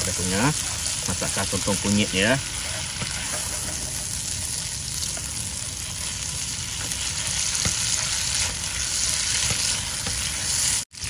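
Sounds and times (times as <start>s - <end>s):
food sizzling in a wok: 0.0s - 11.0s
spatula scraping a pan: 0.2s - 5.3s.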